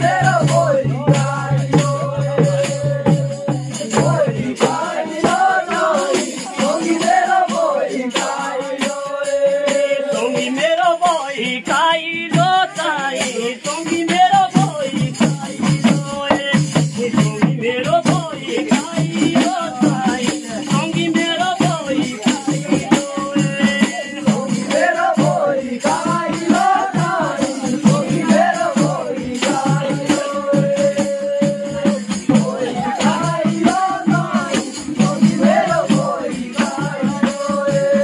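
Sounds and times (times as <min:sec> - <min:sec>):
fast rattling percussive beat: 0:00.0 - 0:38.0
man singing folk song: 0:00.0 - 0:38.0.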